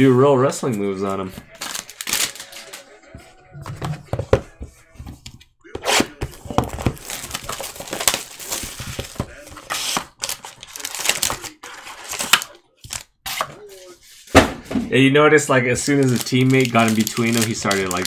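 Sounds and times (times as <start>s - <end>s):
wrappers crinkling and tearing: 1.5s - 2.9s, 6.7s - 13.1s, 15.8s - 18.0s.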